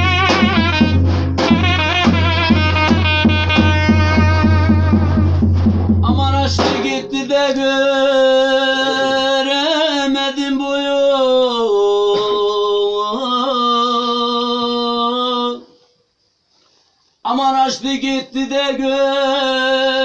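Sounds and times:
man singing a long note: 6.0 - 15.7.

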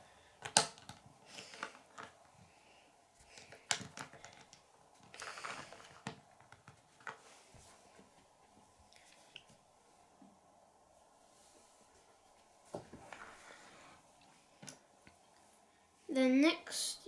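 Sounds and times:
plastic bricks snapping together: 0.4 - 2.2, 3.3 - 7.2.

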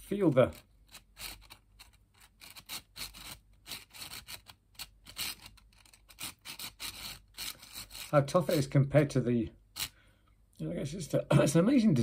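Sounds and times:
plastic pieces scraping: 0.0 - 8.7.

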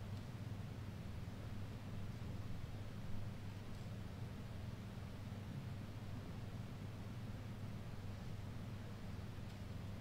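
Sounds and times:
faint low hum and hiss: 0.0 - 10.0.

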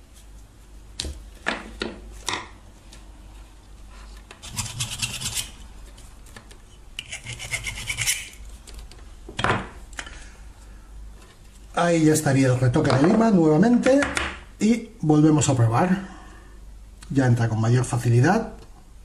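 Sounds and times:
hand file rasping on metal: 4.4 - 5.6, 7.0 - 8.4.

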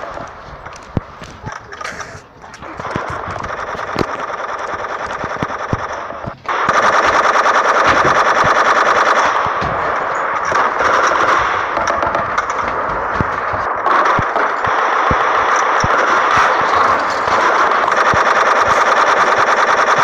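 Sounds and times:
machine-gun fire: 2.6 - 20.0.

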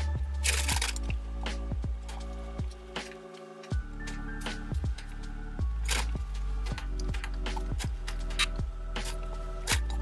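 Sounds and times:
music with held chords: 0.0 - 10.0.

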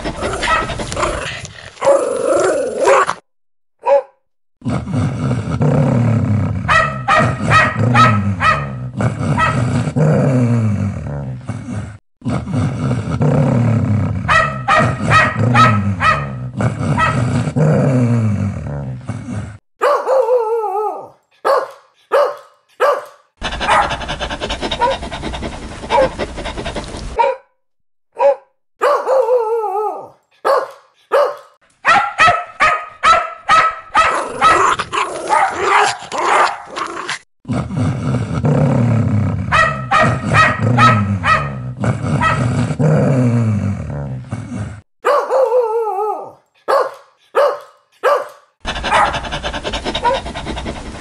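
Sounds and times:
dogs barking: 0.0 - 1.0, 6.7 - 8.8, 9.4 - 9.7, 14.3 - 17.3, 19.8 - 20.4, 21.4 - 26.6, 27.2 - 27.4, 28.2 - 29.4, 30.4 - 36.7, 39.5 - 41.6, 42.2 - 42.5, 45.0 - 45.7, 46.6 - 50.9.

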